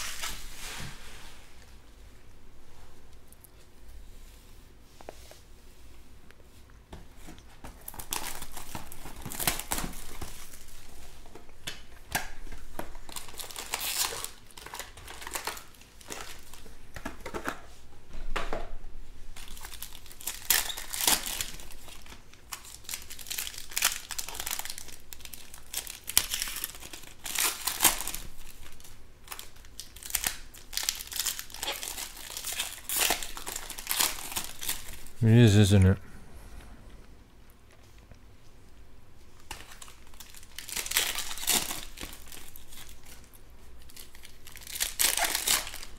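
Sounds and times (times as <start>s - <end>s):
foil wrappers crinkling and tearing: 7.7s - 17.6s, 19.3s - 35.9s, 39.4s - 45.9s.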